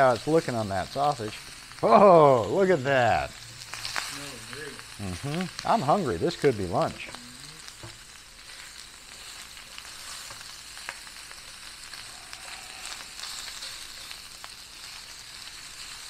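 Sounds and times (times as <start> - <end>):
sausage sizzling: 0.0 - 16.0.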